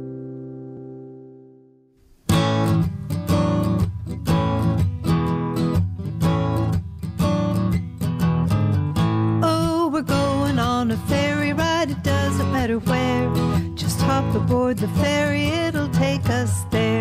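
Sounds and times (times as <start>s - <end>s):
held chord: 0.0s - 1.7s
strummed acoustic guitar: 2.0s - 17.0s.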